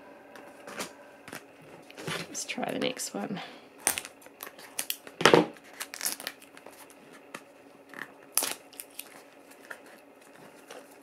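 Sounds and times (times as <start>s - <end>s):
cardboard tearing and crinkling: 3.8s - 7.3s, 8.3s - 11.0s.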